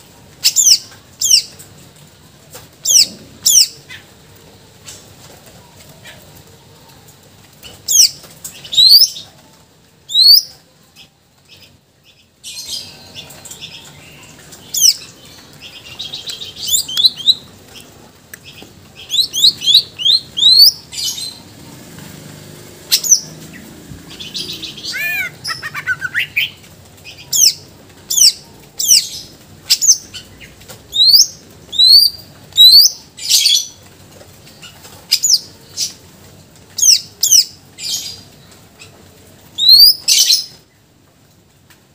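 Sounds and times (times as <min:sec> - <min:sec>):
bird singing loud whistled notes: 0:19.1 - 0:21.1.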